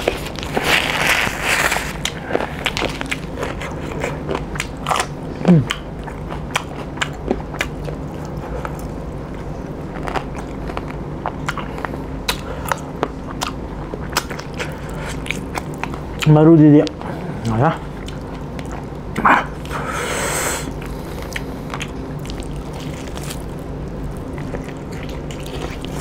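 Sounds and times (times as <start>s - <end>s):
person chewing food: 0.0s - 26.0s
person humming: 5.4s - 5.8s.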